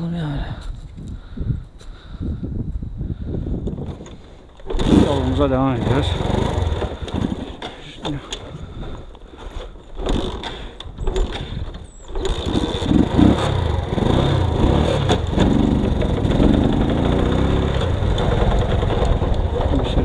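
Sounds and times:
loud steady low noise: 12.4s - 20.0s.

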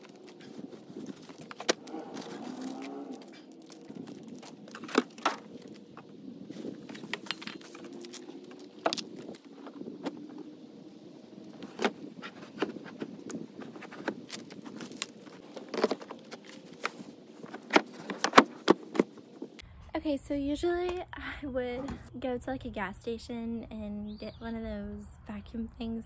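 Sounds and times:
objects clicking and knocking: 0.0s - 10.4s.

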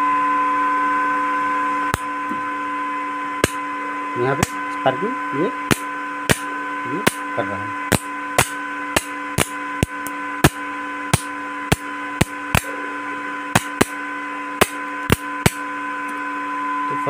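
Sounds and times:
welding machine hum and whine: 0.0s - 17.0s
sharp cracks of welding sparks: 3.4s - 3.6s, 5.7s - 7.3s, 7.9s - 12.7s, 13.5s - 14.0s, 14.6s - 15.6s.

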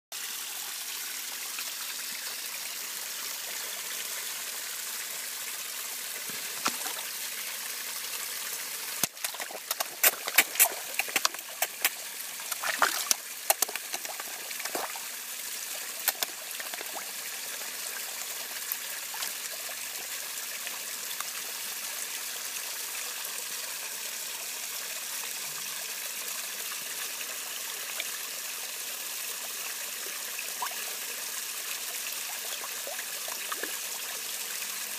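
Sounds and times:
trickle of running water: 0.2s - 34.9s
fish splashing at water surface: 9.0s - 17.1s.

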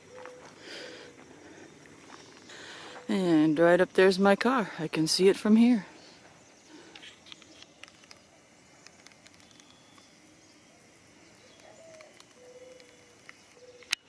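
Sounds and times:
distant dove cooing: 0.0s - 3.1s, 9.8s - 14.0s
quiet outdoor ambience: 0.0s - 14.0s
faint ticks: 6.8s - 10.1s, 11.4s - 14.0s.

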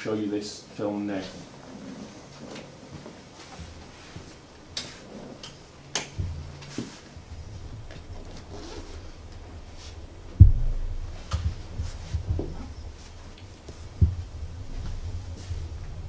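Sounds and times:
low rumbling: 3.8s - 16.0s
low hum: 4.3s - 16.0s
loud deep thump: 8.9s - 15.9s.

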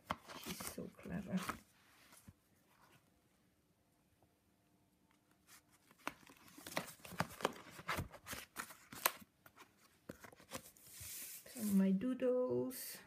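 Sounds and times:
card pages turning: 0.0s - 1.6s, 5.4s - 11.7s
paper crackling and rustling: 5.4s - 11.7s.

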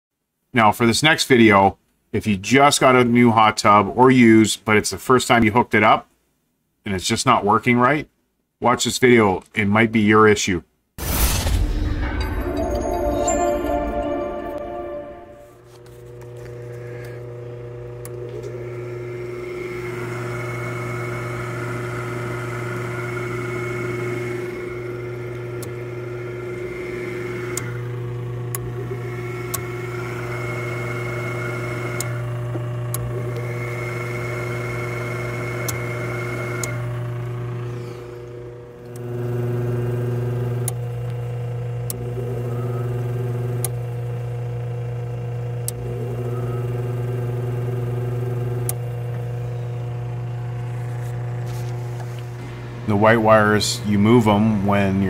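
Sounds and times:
pump motor humming and whining: 15.8s - 55.0s.

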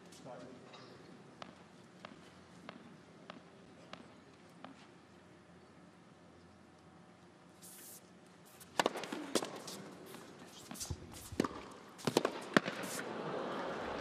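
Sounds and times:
tennis ball bounces: 1.4s - 4.9s, 8.7s - 12.9s
tennis racket strikes: 8.5s - 13.0s.

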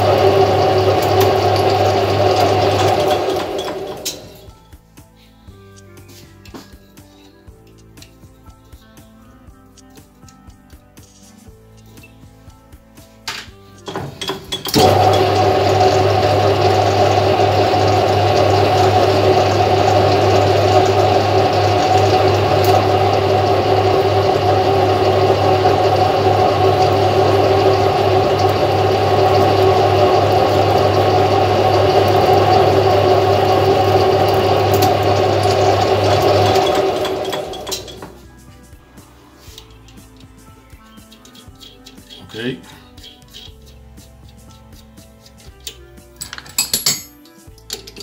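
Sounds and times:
metal lathe motor humming: 0.0s - 4.5s, 13.9s - 38.1s.

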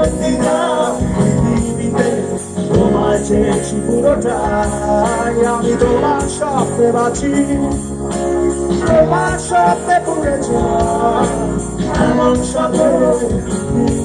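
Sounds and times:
acoustic guitar: 0.0s - 14.0s
bass guitar: 0.0s - 14.0s
drum kit with cymbals: 0.0s - 14.0s
electric guitar: 0.0s - 14.0s
keyboard: 0.0s - 14.0s
person singing: 0.0s - 14.0s.

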